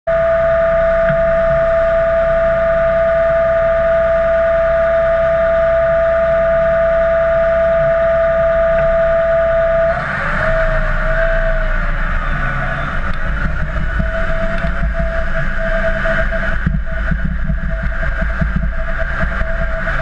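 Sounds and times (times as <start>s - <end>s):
combine harvester high whine: 0.1s - 20.0s
low engine rumble: 0.1s - 20.0s.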